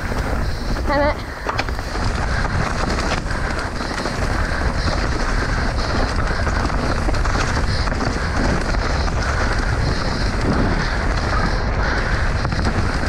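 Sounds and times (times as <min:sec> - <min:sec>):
bike rattling over rough ground: 0:00.0 - 0:13.0
wind buffeting microphone: 0:00.0 - 0:13.0.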